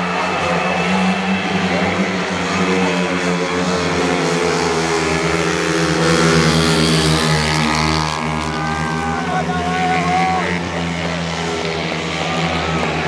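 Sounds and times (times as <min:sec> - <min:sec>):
racing motorcycles at full throttle: 0:00.0 - 0:13.0.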